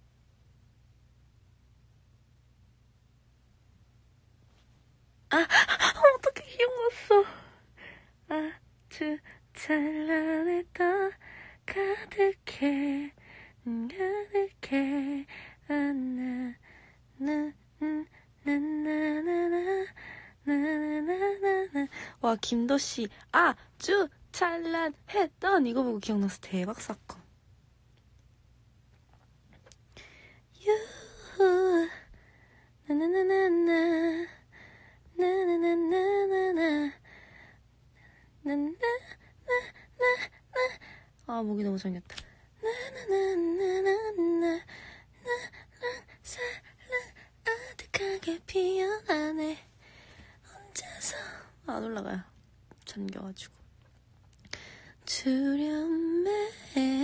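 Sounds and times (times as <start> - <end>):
woman humming: 5.3 - 7.5
woman humming a melody: 17.2 - 21.9, 38.4 - 40.8, 42.6 - 44.6.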